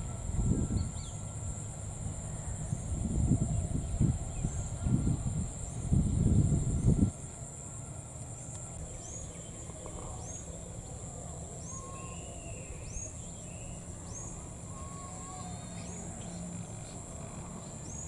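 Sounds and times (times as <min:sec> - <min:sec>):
birds whistling: 0:00.0 - 0:01.4, 0:08.5 - 0:17.0
high-pitched insect drone: 0:00.0 - 0:18.0
small bird calling: 0:08.8 - 0:18.0.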